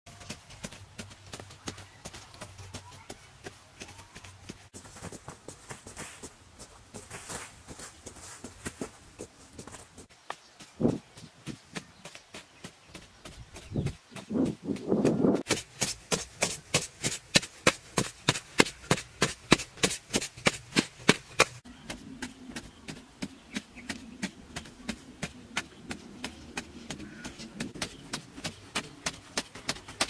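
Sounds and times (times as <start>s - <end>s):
hoe chopping into dry soil: 15.2s - 22.4s.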